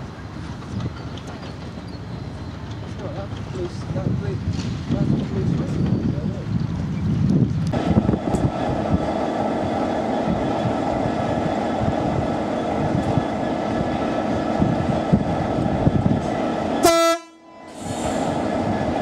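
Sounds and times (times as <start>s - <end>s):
diesel locomotive engine running: 0.0s - 19.0s
locomotive horn blast: 16.8s - 17.7s.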